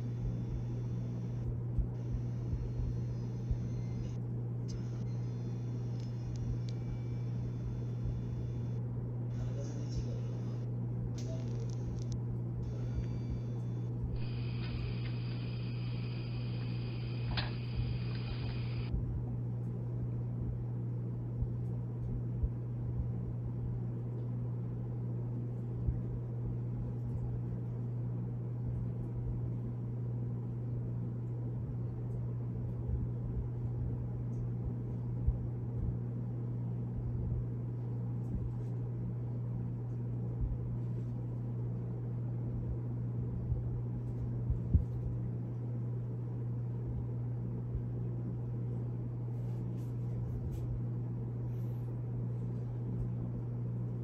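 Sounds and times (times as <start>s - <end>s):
soft low thumps: 0.0s - 4.1s, 32.8s - 36.1s, 42.6s - 45.3s
steady low hum: 0.0s - 54.0s.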